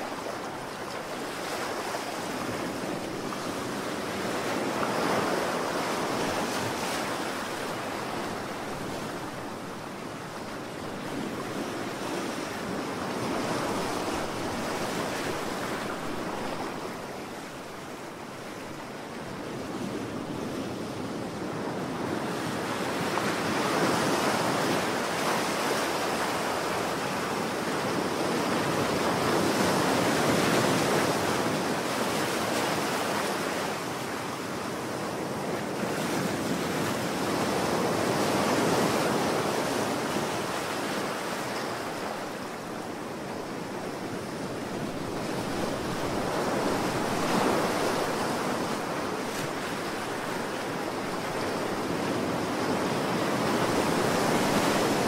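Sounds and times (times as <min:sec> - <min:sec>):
ocean waves breaking: 0:21.8 - 0:55.0.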